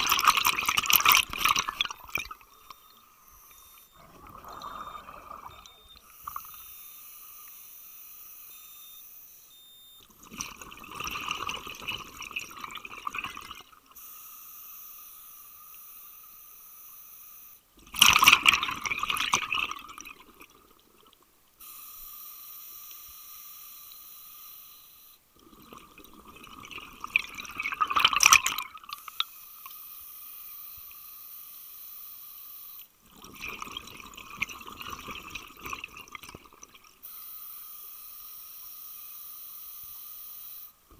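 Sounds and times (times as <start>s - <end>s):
diving regulator hissing inhale: 3.2s - 7.4s
bubbling exhale underwater: 4.0s - 5.9s.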